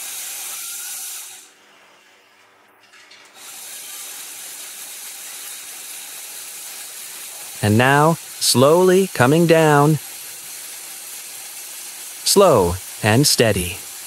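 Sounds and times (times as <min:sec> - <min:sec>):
small electric motor whirring: 0:00.0 - 0:01.5, 0:03.4 - 0:07.6.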